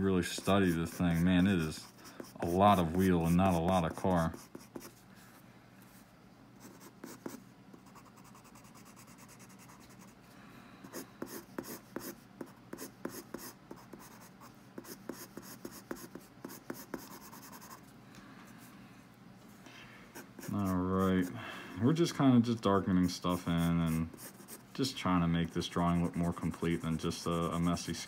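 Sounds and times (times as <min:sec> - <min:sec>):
pencil scratching on paper: 0:00.3 - 0:05.0, 0:06.6 - 0:10.1, 0:10.9 - 0:17.8, 0:20.2 - 0:21.3, 0:22.8 - 0:24.6, 0:25.8 - 0:28.0.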